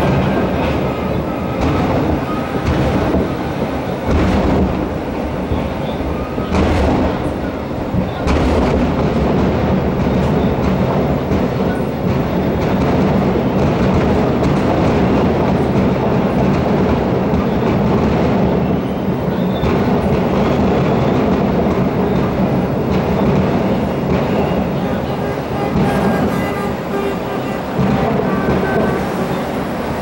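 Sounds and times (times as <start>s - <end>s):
fireworks crackling and rumbling: 0.0s - 30.0s.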